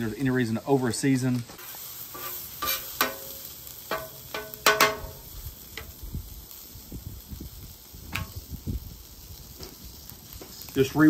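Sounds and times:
metal spatula clanking on griddle: 2.1s - 5.9s.

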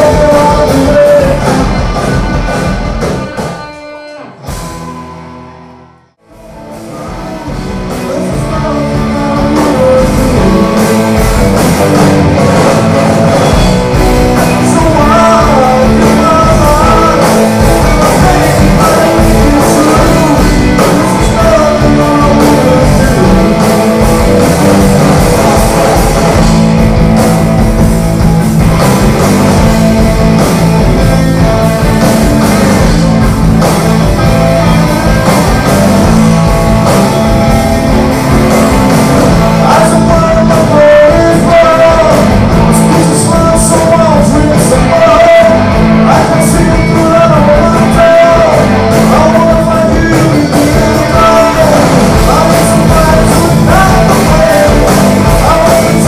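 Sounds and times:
man singing: 0.0s - 2.5s, 3.2s - 4.5s, 6.8s - 26.6s, 39.2s - 56.0s
rock band playing live: 0.0s - 56.0s.

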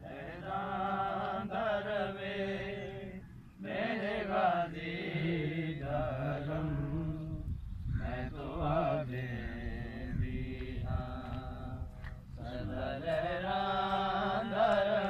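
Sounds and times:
man chanting a lament: 3.9s - 15.0s.

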